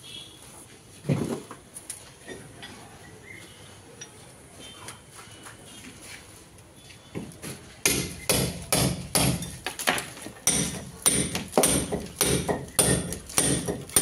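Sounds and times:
hammer striking chisel into brick: 7.8 - 9.6, 10.4 - 14.0.

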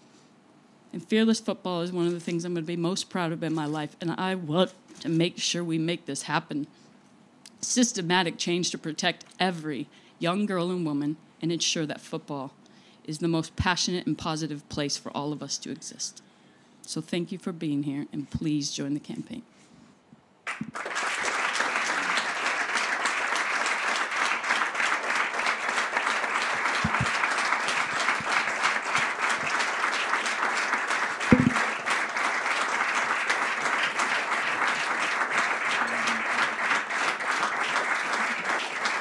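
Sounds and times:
audience applauding: 20.5 - 39.0
low knock: 31.3 - 31.7.

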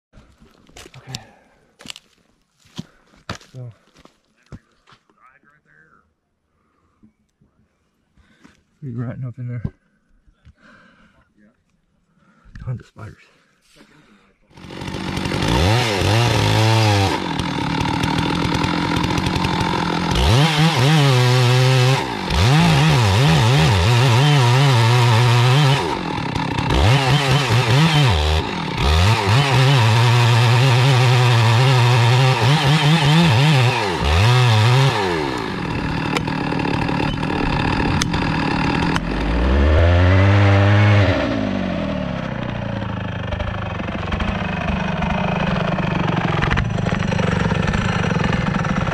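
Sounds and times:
chainsaw cutting wood: 14.5 - 48.9
chainsaw idling: 14.5 - 48.9.

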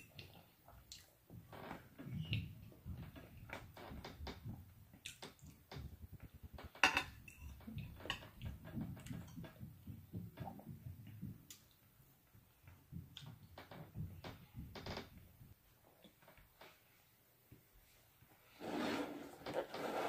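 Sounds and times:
chewing and mouth sounds: 0.1 - 1.2.

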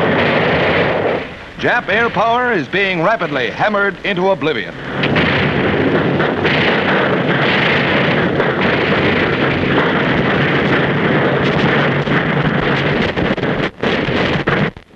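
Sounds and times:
anti-aircraft gunfire din: 0.0 - 14.9
faint cracks: 0.0 - 14.9.

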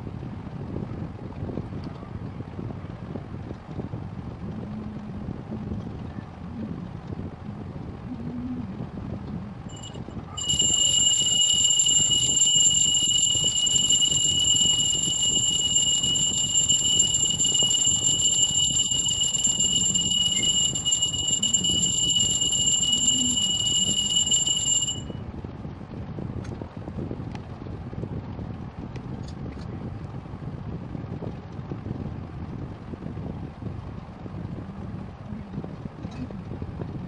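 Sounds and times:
high-pitched steady tone: 9.7 - 25.2.

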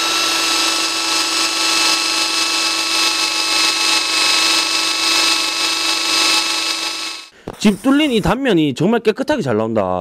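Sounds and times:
drill boring through steel tube: 0.0 - 7.3.

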